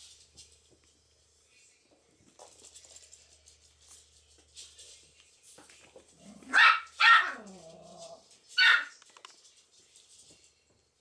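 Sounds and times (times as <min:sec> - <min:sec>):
puppies scuffling: 0:00.0 - 0:11.0
high-pitched puppy yaps: 0:06.5 - 0:07.4, 0:08.6 - 0:09.0.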